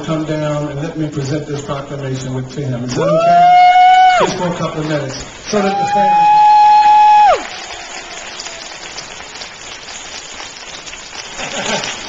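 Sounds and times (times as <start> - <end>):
crowd noise: 0.0 - 12.0
person hollering woo: 3.0 - 4.3, 5.7 - 7.5.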